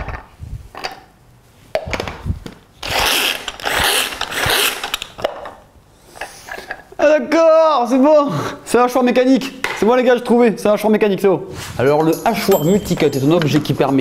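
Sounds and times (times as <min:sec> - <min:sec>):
hand chopper rasping pulls: 0:02.8 - 0:05.1.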